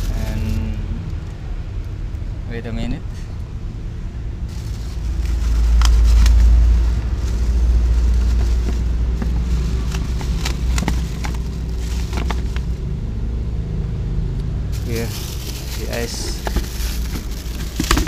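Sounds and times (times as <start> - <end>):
steady low rumble: 0.0 - 18.0
ice clicking in plastic bucket: 14.8 - 18.0.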